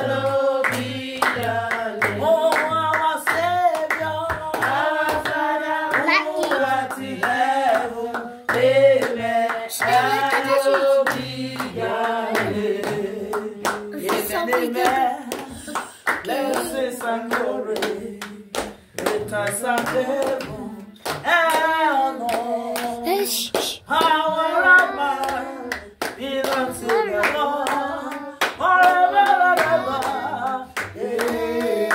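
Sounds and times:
rhythmic hand clapping: 0.0 - 31.9
woman singing: 5.9 - 6.9, 9.7 - 12.9, 13.6 - 18.0, 21.3 - 31.9.

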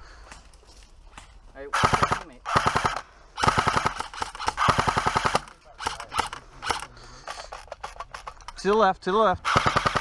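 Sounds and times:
airsoft gun firing bursts: 1.7 - 6.9, 9.4 - 10.0.

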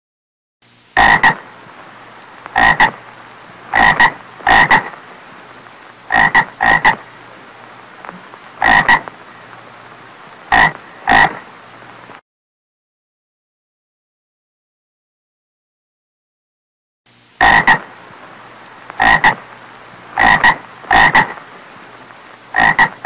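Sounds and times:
frog croaking: 1.0 - 1.5, 2.5 - 3.0, 3.7 - 5.0, 6.1 - 7.1, 8.1 - 9.1, 10.5 - 11.5, 17.4 - 17.9, 18.9 - 19.5, 20.1 - 21.4, 22.5 - 23.0.

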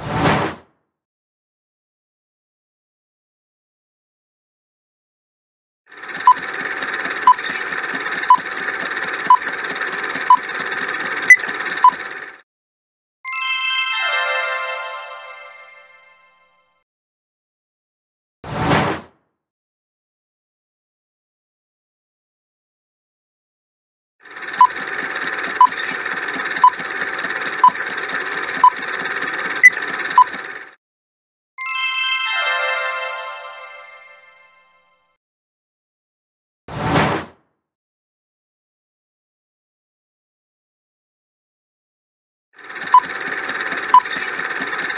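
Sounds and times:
fast steady ticking: 5.9 - 12.4, 24.2 - 30.8, 42.6 - 44.9.

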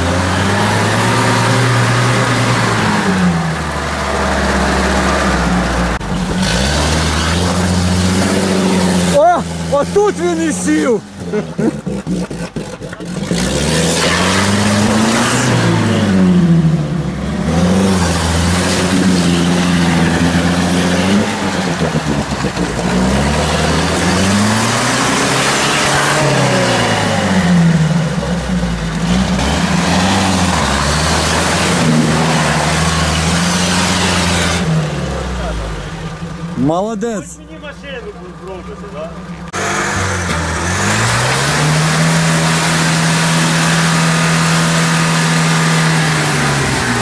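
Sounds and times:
wheels churning through mud: 0.0 - 16.2, 17.4 - 35.8
engine revving hard: 0.0 - 16.7, 17.3 - 35.8, 39.5 - 47.0.

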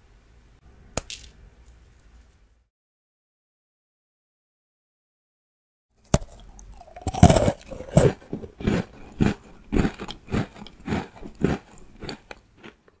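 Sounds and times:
cookie crunching while chewed: 6.1 - 13.0.

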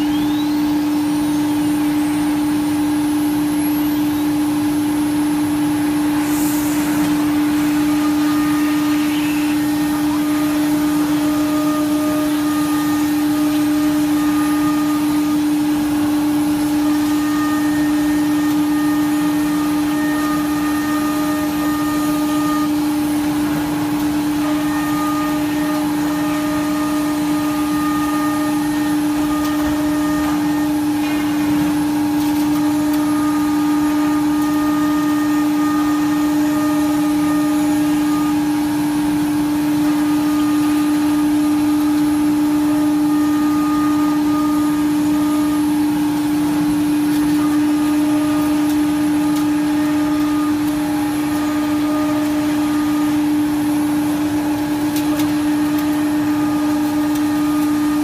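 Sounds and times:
dust extraction rushing: 0.0 - 58.0
router spindle high hum: 0.0 - 58.0
higher whines: 3.2 - 13.8.

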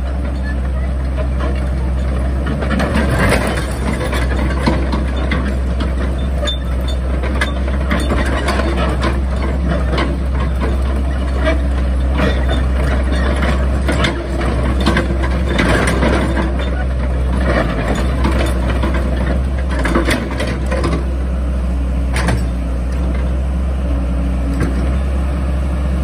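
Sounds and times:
excavator diesel engine droning: 0.0 - 26.0
metallic clanks and knocks: 22.1 - 22.6.

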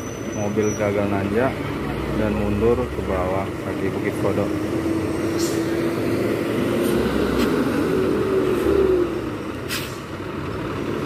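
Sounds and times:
diesel truck engine passing: 0.0 - 11.0.

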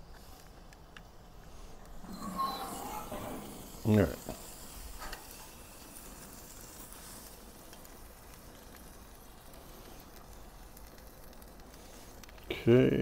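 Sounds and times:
steaks sizzling on a grill: 0.1 - 13.0.

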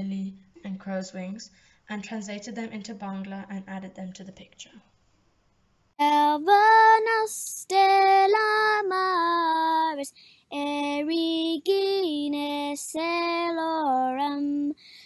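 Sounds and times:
singer breathing: 1.5 - 1.8, 10.1 - 10.5, 14.8 - 15.0
girl singing a chant: 6.0 - 15.0.

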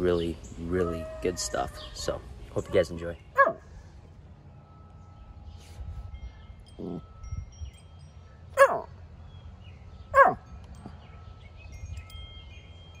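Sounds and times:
dog barking: 3.4 - 3.6, 8.6 - 8.9, 10.2 - 10.4.

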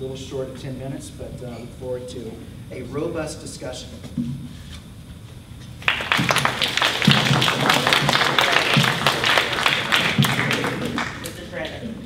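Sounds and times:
crowd applauding: 5.8 - 11.8.

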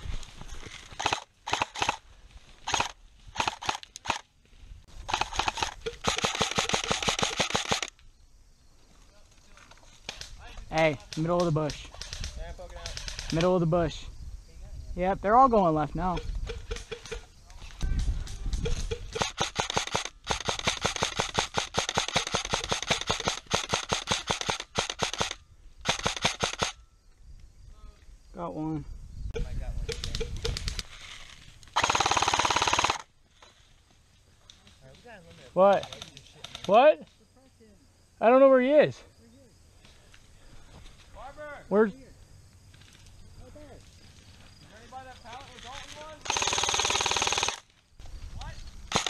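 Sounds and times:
airsoft rifle firing full auto: 1.0 - 2.0, 5.1 - 7.9, 19.1 - 26.8, 31.8 - 33.1, 46.2 - 47.6.

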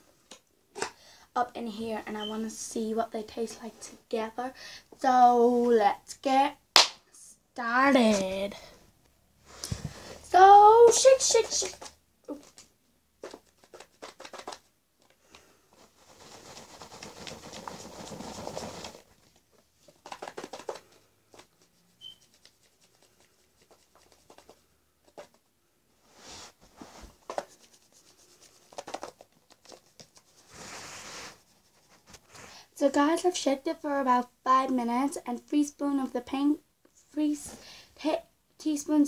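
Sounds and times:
candy rattling in plastic tub: 13.2 - 14.7, 15.8 - 21.5.

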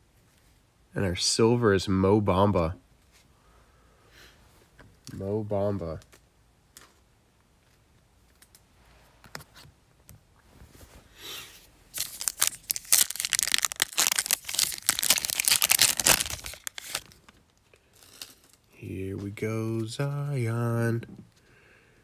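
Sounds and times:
foil wrapper crackling: 11.9 - 18.7.

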